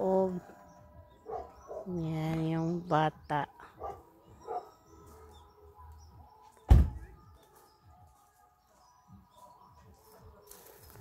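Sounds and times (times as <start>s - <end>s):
car door shutting: 6.7s - 7.1s.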